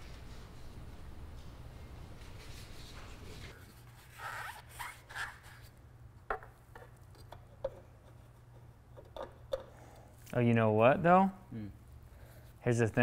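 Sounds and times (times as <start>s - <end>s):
paper towel rasping: 2.4s - 5.8s.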